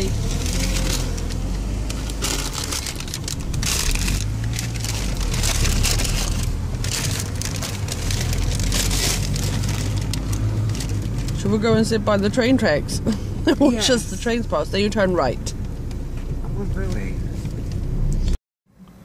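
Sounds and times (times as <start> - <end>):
crackling rustle: 0.0 - 11.5
car engine and road noise: 0.0 - 19.0.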